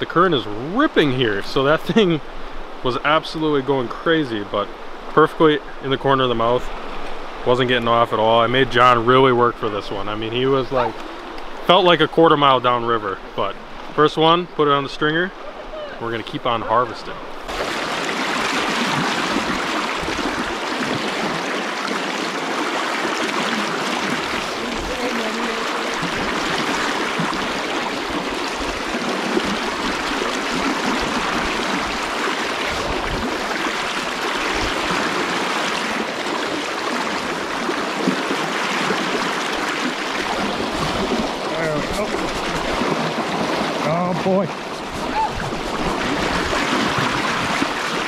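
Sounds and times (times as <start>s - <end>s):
river rushing over rocks: 15.3s - 48.0s.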